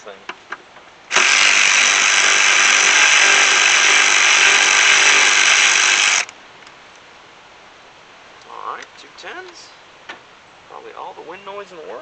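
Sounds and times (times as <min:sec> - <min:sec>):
cordless electric ratchet running: 0:01.1 - 0:06.3.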